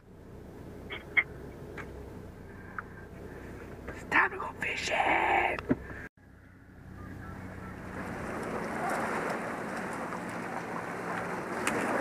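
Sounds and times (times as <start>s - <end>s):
faint low hum: 0.0s - 9.0s
water sloshing around kayak: 7.7s - 12.0s.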